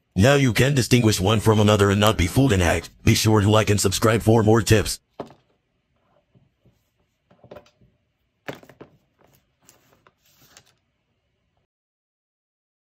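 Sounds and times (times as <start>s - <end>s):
cables handled on desk mat: 5.2s - 10.9s.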